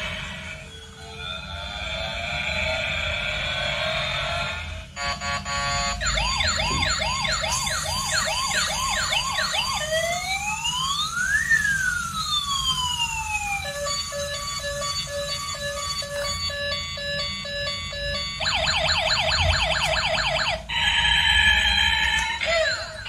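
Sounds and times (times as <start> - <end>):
toy siren sound effects: 5.0 - 23.0.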